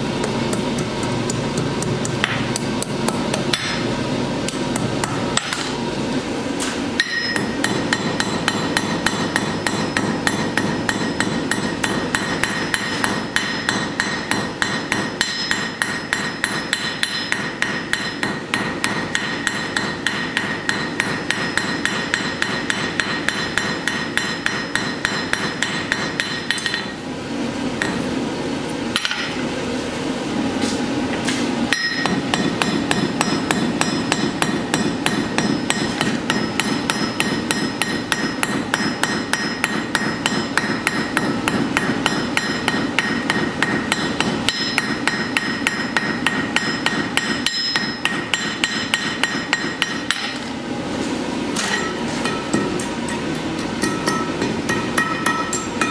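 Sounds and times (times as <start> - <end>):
hammer striking steel on anvil: 0.2 - 5.8, 6.6 - 27.0, 27.8 - 28.1, 28.9 - 29.4, 31.7 - 50.5, 51.6 - 55.9
anvil ringing: 7.0 - 27.0, 31.7 - 50.4, 51.6 - 55.9.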